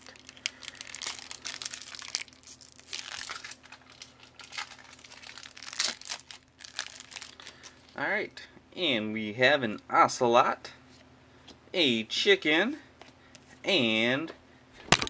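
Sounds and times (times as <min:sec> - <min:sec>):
foil wrapper tearing and crinkling: 0:00.0 - 0:07.8.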